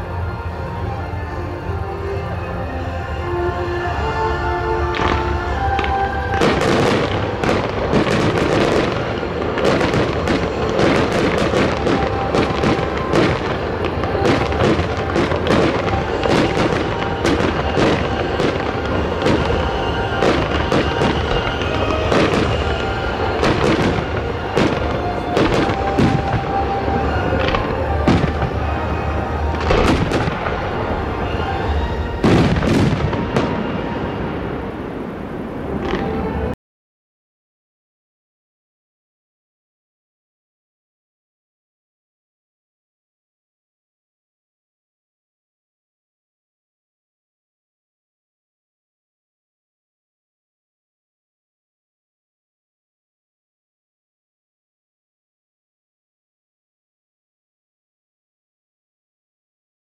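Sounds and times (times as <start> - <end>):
fireworks booming and crackling: 4.8 - 36.5.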